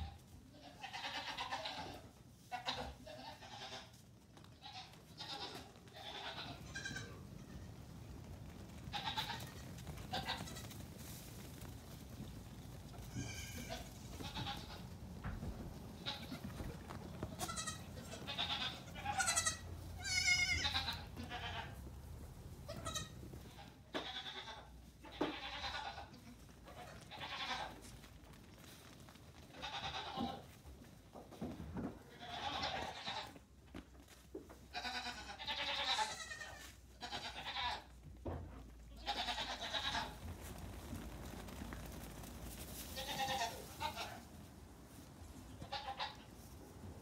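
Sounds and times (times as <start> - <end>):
goat kids bleating: 0.0 - 4.0, 4.6 - 7.7, 8.9 - 10.7, 13.0 - 15.4, 16.0 - 21.9, 22.6 - 27.9, 29.5 - 30.6, 32.1 - 33.4, 34.5 - 38.0, 38.9 - 40.2, 42.8 - 44.3, 45.5 - 46.3.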